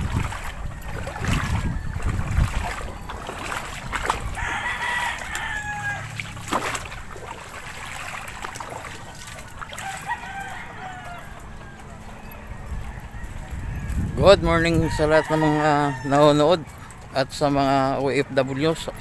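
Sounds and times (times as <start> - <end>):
wind on microphone: 0.0 - 16.0
footsteps on wet dirt: 0.0 - 19.0
rooster crowing: 4.2 - 6.4, 9.1 - 16.5.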